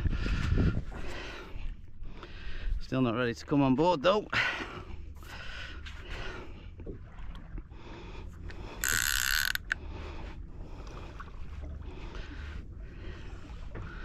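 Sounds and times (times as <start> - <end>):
fishing reel winding: 8.8 - 9.8
reel mechanism ticking: 8.8 - 9.8.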